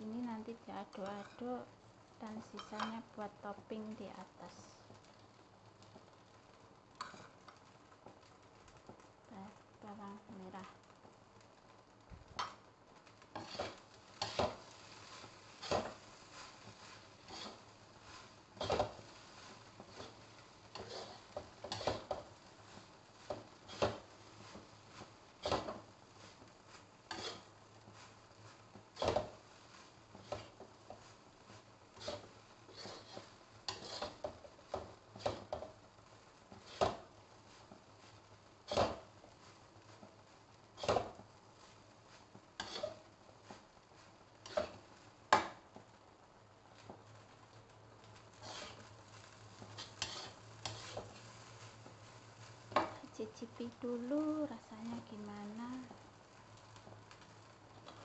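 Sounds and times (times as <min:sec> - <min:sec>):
metal spatula scraping a wok: 0:00.9 - 0:01.5, 0:13.3 - 0:35.6, 0:36.5 - 0:40.1, 0:40.7 - 0:44.9, 0:48.3 - 0:53.0.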